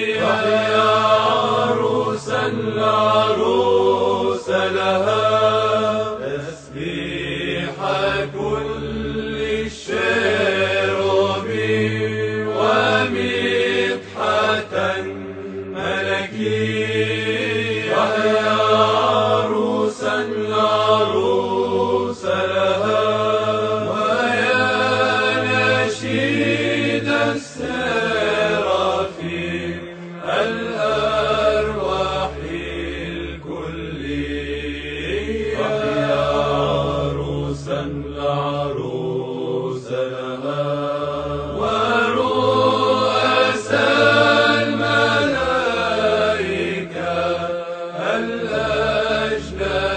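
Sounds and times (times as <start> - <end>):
voices chanting slow lines: 0.0 - 49.9.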